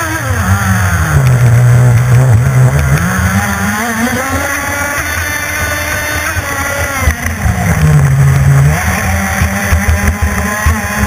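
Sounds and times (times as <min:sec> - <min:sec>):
model boat engine revving: 0:00.0 - 0:11.0.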